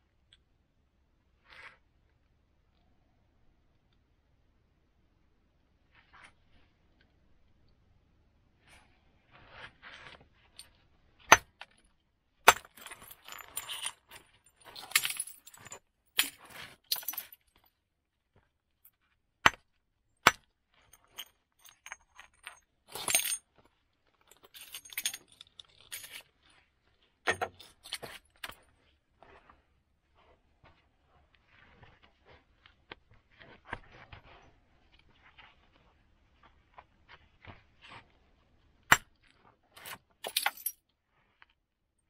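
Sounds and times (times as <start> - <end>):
stone striking flint cracks: 11.3 - 11.6
flint scraping and clinking: 12.5 - 17.6, 20.8 - 23.4, 24.4 - 26.7.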